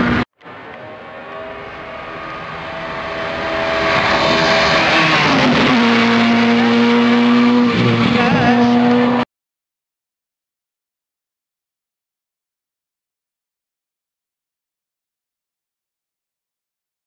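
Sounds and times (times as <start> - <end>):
rally car engine: 0.0 - 9.3.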